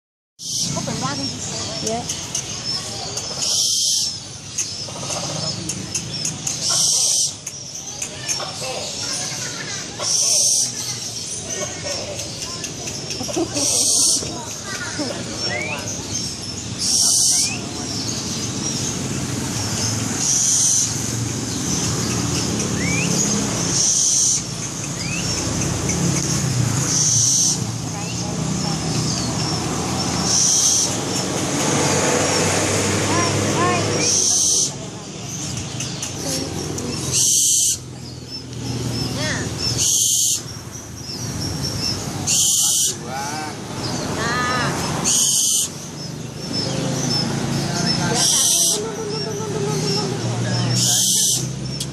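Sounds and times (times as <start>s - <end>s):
low traffic rumble: 0.4s - 51.9s
owl hissing: 37.1s - 37.9s, 39.7s - 40.5s, 42.2s - 43.0s, 45.0s - 45.8s, 48.2s - 48.9s, 50.8s - 51.5s.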